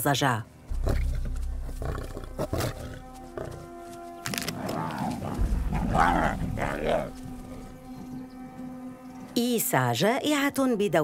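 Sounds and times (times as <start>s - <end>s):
music with sustained notes: 0.5s - 11.0s
lions growling: 0.7s - 8.3s.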